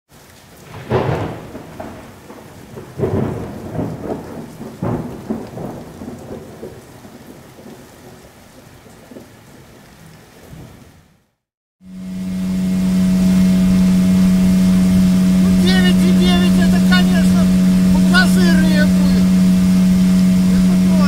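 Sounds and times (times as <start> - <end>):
rain hiss: 0.1 - 11.0, 11.8 - 21.0
thunder-like booms: 0.6 - 2.1, 3.0 - 6.4.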